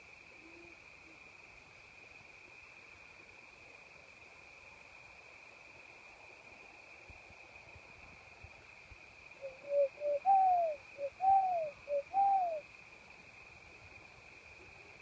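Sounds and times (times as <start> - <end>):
crickets chirping: 0.0 - 15.0
owl hooting: 9.4 - 12.6.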